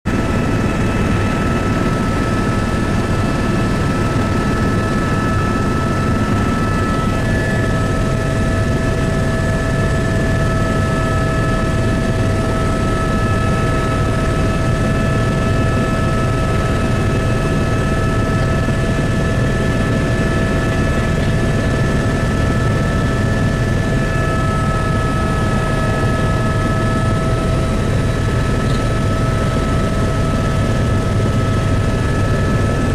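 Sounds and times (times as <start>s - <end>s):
helicopter rotor and engine drone: 0.0s - 32.9s
constant whining tones: 0.1s - 32.9s.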